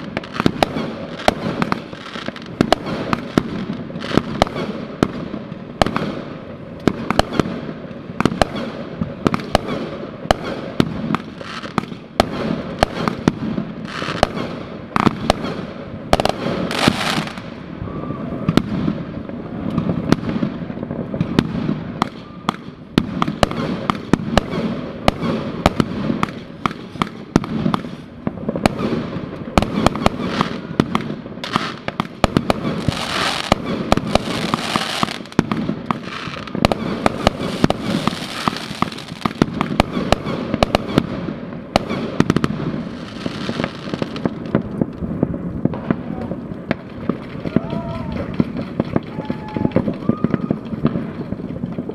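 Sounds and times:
fireworks bangs and pops: 0:00.0 - 0:51.9
low rumble of explosions: 0:00.0 - 0:51.9
fireworks hissing bursts: 0:07.0 - 0:20.6, 0:23.2 - 0:41.1, 0:42.0 - 0:44.7.

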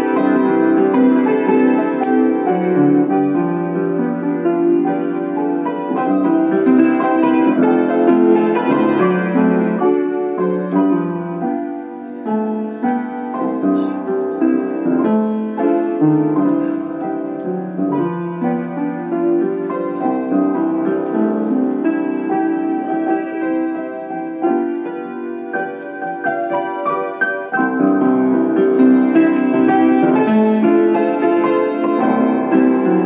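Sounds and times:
solo piano: 0:00.0 - 0:33.0.

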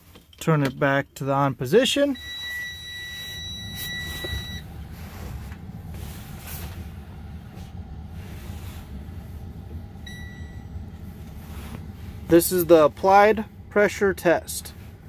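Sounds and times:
low steady rumble: 0:00.0 - 0:15.0
dashboard warning buzzer: 0:02.2 - 0:04.6.

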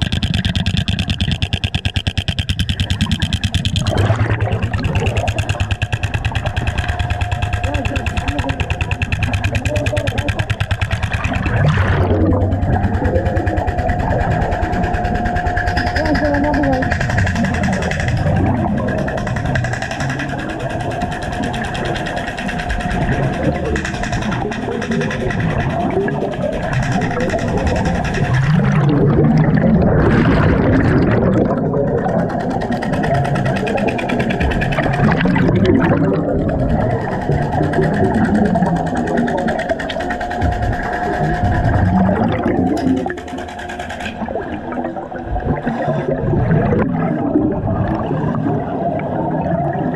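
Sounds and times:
fast even rattle: 0:00.0 - 0:29.2, 0:30.0 - 0:44.8
underwater jackhammer hammering: 0:00.0 - 0:48.4
low rumble: 0:00.0 - 0:49.6
steady high tone: 0:11.4 - 0:18.2.

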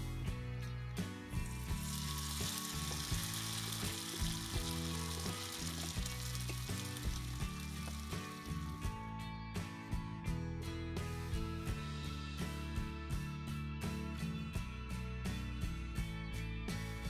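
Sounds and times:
background music with beat: 0:00.0 - 0:17.0
batter sizzling in oil: 0:01.3 - 0:09.0.

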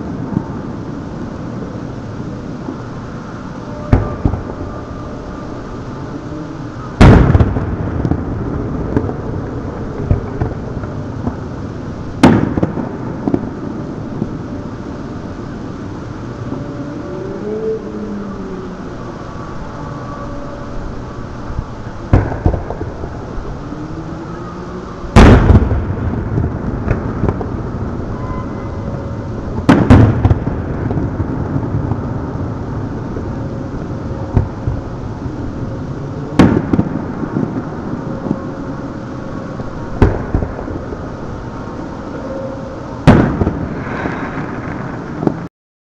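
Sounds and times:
steady low rumble: 0:00.0 - 0:45.5
distant firework booms: 0:07.0 - 0:11.4, 0:22.1 - 0:23.2, 0:25.2 - 0:27.8, 0:29.6 - 0:32.1, 0:43.0 - 0:45.4.

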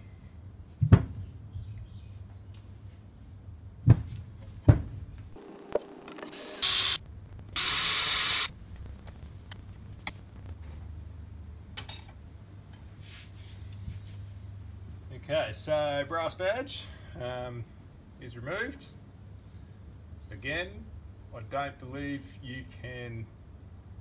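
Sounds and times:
cordless drill drilling metal: 0:06.2 - 0:07.0, 0:07.6 - 0:08.5.

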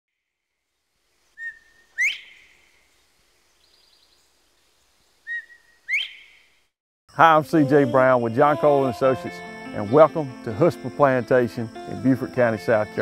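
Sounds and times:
quail whistling two-note call: 0:01.4 - 0:02.4, 0:05.3 - 0:06.2.

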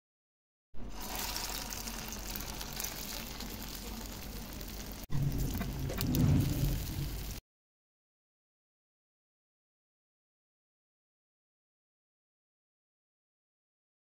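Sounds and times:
patties sizzling in oil: 0:00.8 - 0:07.4
low rumbling: 0:04.2 - 0:07.4.

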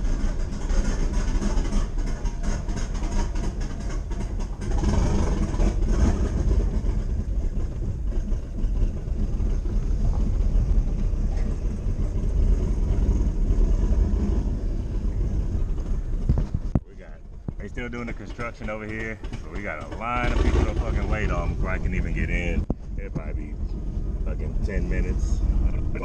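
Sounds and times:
car engine and road noise: 0:00.0 - 0:26.0.

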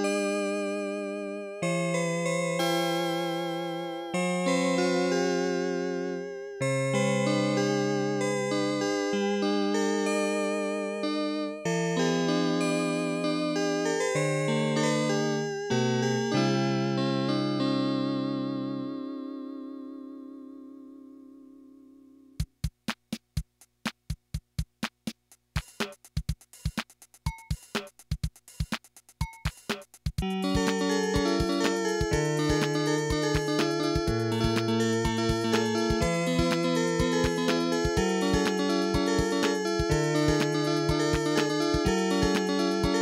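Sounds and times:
electronic keyboard chords: 0:00.0 - 0:23.2, 0:25.6 - 0:43.0
clicking percussion beat: 0:22.4 - 0:38.6
drum machine kick and snare: 0:22.4 - 0:42.8
drum machine hi-hat: 0:22.4 - 0:43.0.

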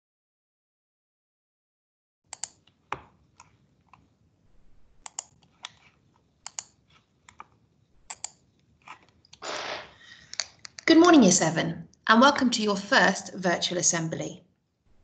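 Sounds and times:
computer mouse clicks: 0:02.3 - 0:04.1, 0:05.0 - 0:09.4, 0:10.2 - 0:10.9
short rush of noise: 0:09.4 - 0:10.0.

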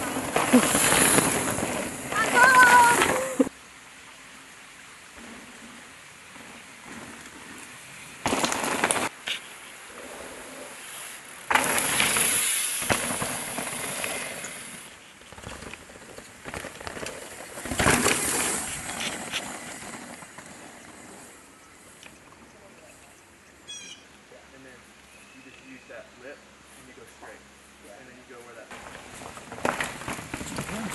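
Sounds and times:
bike rattling: 0:00.0 - 0:03.5, 0:05.2 - 0:22.1, 0:28.7 - 0:30.9
bike tyres crunching on rock: 0:00.0 - 0:03.5, 0:06.3 - 0:09.4, 0:11.4 - 0:21.5, 0:28.7 - 0:30.9.

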